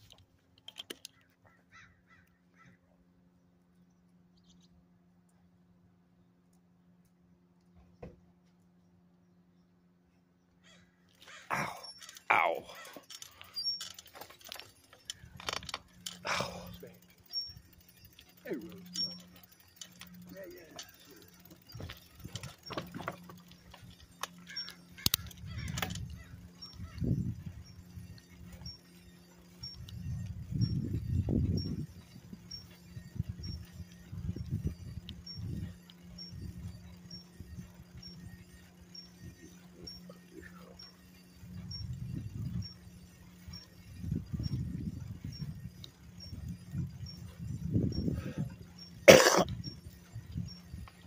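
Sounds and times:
bicycle rattling and clicking: 0.0 - 5.3, 10.6 - 51.0
faint steady hum: 1.8 - 51.0
short bird calls: 10.5 - 13.9, 23.6 - 27.8
sharp clicks: 17.0 - 27.1.

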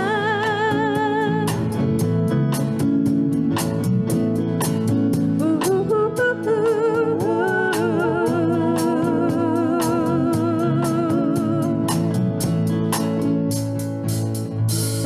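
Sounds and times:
live rock band playing: 0.0 - 15.0
drum and cymbal strikes: 1.5 - 15.0
voices singing long notes: 6.4 - 11.7.

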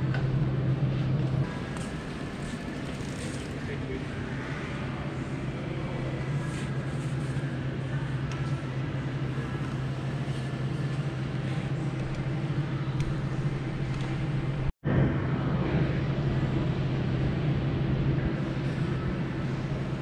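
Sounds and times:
shop background din: 0.0 - 14.7
steady low hum: 0.0 - 20.0.

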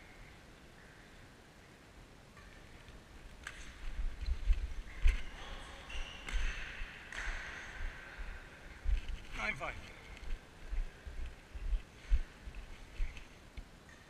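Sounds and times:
shoes squeaking on court: 3.4 - 8.4
racket hitting shuttlecock: 3.4 - 8.6.

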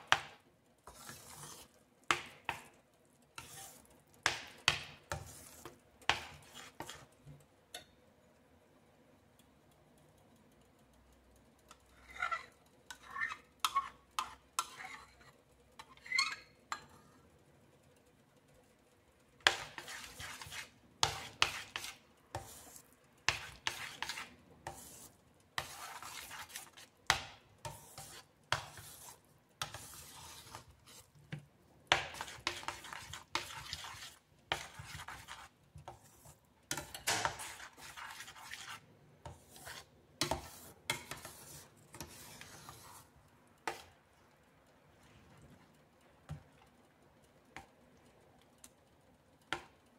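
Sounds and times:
metal spoon scraping a pan: 0.0 - 2.7, 3.3 - 7.9, 11.6 - 18.1, 19.4 - 44.0.

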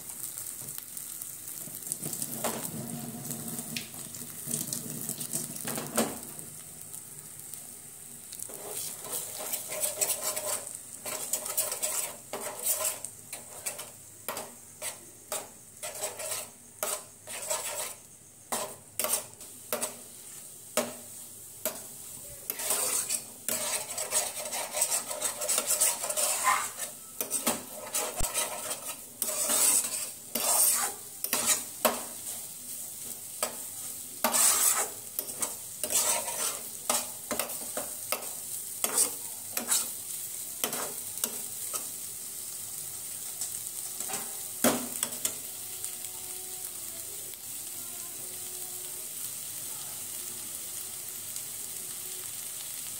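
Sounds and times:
eggs sizzling in a frying pan: 0.0 - 52.9
spatula scraping and knocking pan: 8.5 - 20.1, 20.8 - 21.9, 22.5 - 32.4, 33.0 - 40.0, 40.6 - 42.0.

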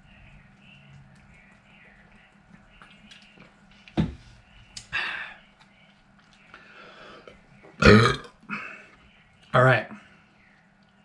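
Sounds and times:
swallowing: 7.2 - 9.0.

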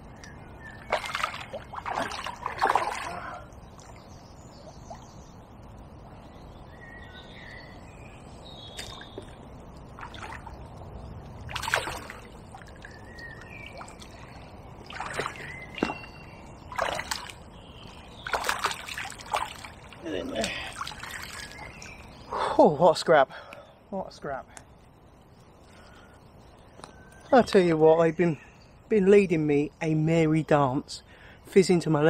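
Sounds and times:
small birds singing: 0.0 - 32.0
fish splashing at the surface: 0.9 - 3.4, 11.5 - 12.9, 14.8 - 16.1, 16.7 - 17.4, 18.2 - 21.8.

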